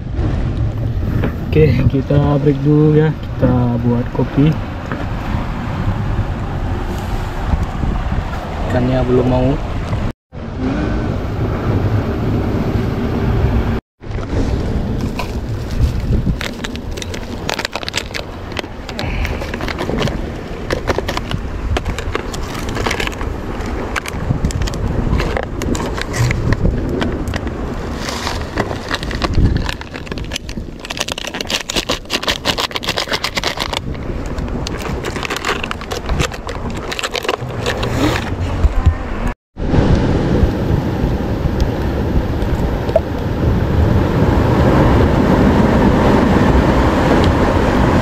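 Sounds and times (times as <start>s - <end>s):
wind rumble on microphone: 0.0s - 48.0s
coffee sachets crinkling: 15.0s - 26.2s, 27.8s - 37.9s.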